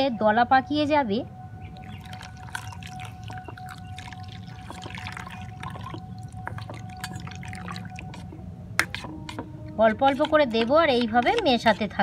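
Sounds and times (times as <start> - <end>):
faint steady hum: 0.0 - 12.0
milk pouring and splashing: 1.6 - 12.0
spoon clicking against bowl: 8.8 - 11.9.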